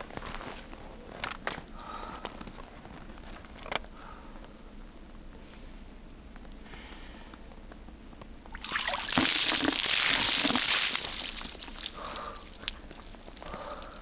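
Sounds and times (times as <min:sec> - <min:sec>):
water splashing over person: 0:08.5 - 0:13.6.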